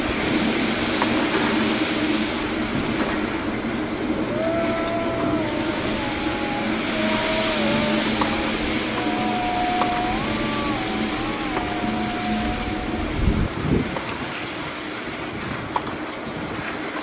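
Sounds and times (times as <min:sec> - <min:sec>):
train rumble and hiss: 0:00.0 - 0:17.0
faint whistle-like tones: 0:04.3 - 0:13.5.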